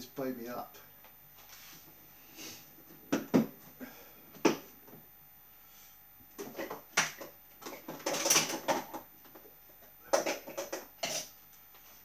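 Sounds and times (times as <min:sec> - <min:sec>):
items knocking on a worktop: 0:03.1 - 0:03.5, 0:06.4 - 0:09.5, 0:10.1 - 0:11.3.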